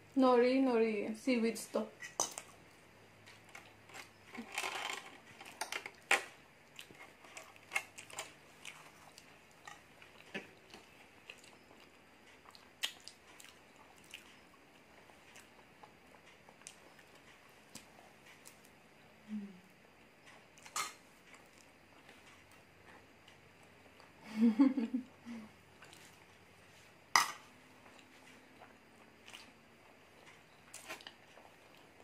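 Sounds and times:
forks scraping plastic containers: 0:03.9 - 0:05.8
person chewing food: 0:05.3 - 0:18.8, 0:20.0 - 0:24.2, 0:25.7 - 0:32.0.

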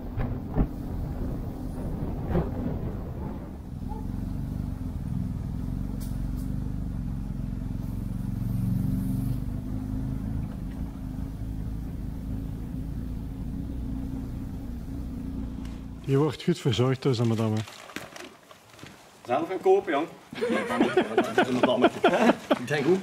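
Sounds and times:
vehicle engine droning: 0:00.0 - 0:16.4.

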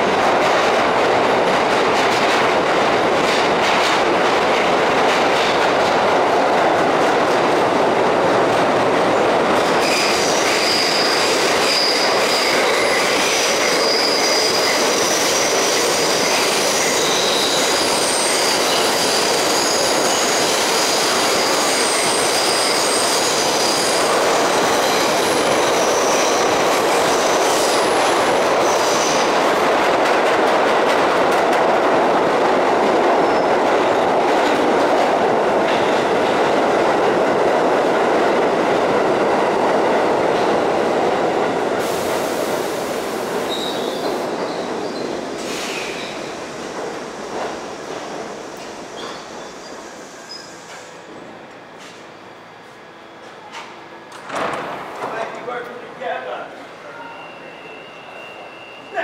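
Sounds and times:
train wheels rumbling on rail: 0:00.0 - 0:59.0
high wheel squeal: 0:09.8 - 0:26.4, 0:43.5 - 0:46.2, 0:56.9 - 0:59.0.

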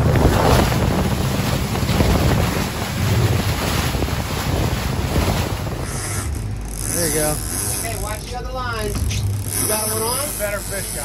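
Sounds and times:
wind buffeting microphone: 0:00.0 - 0:08.3
water rushing along boat hull: 0:00.0 - 0:11.0.

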